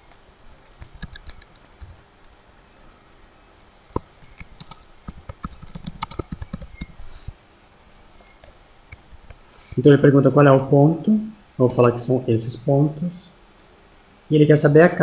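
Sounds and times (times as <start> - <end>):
typing on computer keyboard: 0.0 - 7.3.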